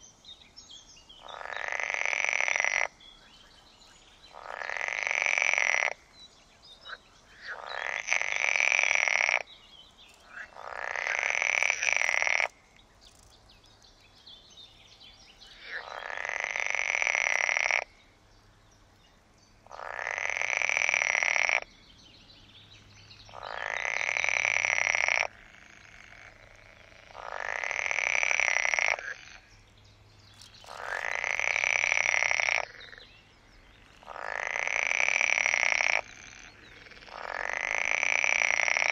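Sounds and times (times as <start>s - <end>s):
frogs croaking: 0.0s - 38.9s.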